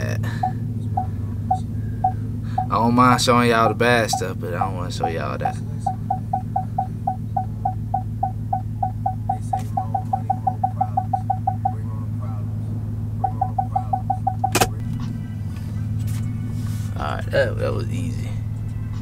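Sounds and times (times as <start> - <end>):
low engine hum: 0.0 - 19.0
parking sensor beeps: 0.3 - 12.0, 13.2 - 14.8
sharp click: 14.5 - 14.8.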